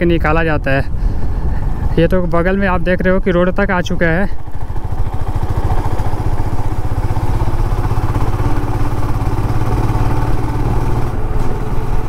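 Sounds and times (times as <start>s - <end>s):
motorcycle engine cruising: 3.8s - 12.0s.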